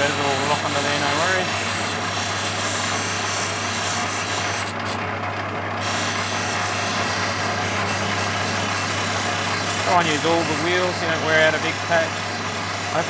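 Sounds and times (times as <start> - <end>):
stone hissing on grinding wheel: 0.0 - 5.0, 5.8 - 13.0
motor hum: 0.0 - 13.0.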